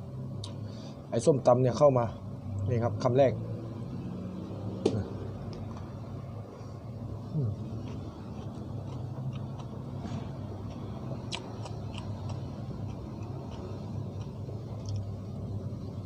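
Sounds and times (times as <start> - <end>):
person chewing: 7.2 - 15.2.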